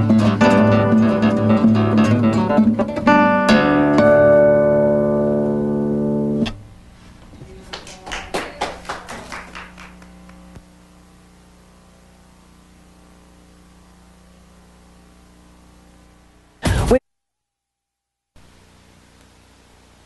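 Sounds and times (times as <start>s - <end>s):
classical guitar chord ringing: 0.0s - 6.7s
low steady hum: 0.0s - 17.0s, 18.4s - 20.0s.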